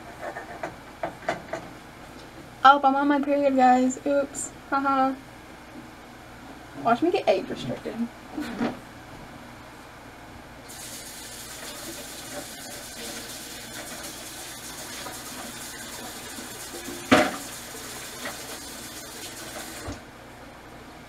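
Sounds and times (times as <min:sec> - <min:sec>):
water running from tap into sink: 0:10.7 - 0:20.0.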